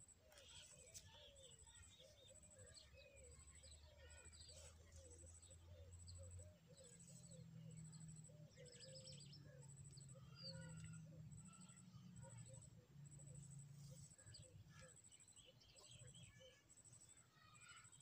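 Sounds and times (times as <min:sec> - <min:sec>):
birds chirping and calling: 0:00.0 - 0:12.6.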